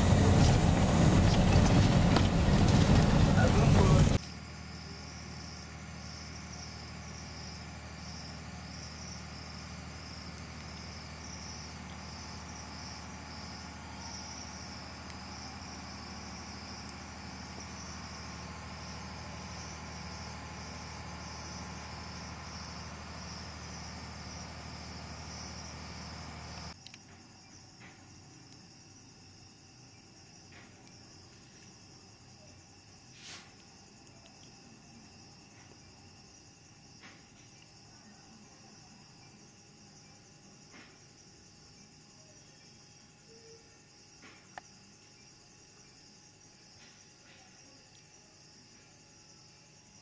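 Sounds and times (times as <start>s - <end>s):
low hum: 0.0s - 5.6s
crickets chirping: 0.0s - 50.0s.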